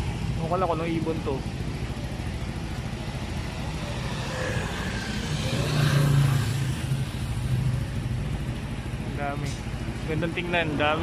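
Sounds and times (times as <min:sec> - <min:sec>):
traffic rumble: 0:00.0 - 0:11.0
motor vehicle passing: 0:01.9 - 0:08.9.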